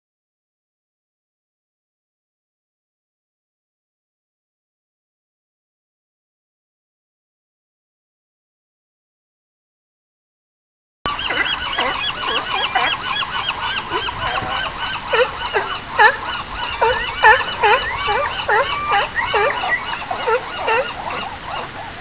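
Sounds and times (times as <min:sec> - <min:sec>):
sea lions barking: 0:11.1 - 0:22.0.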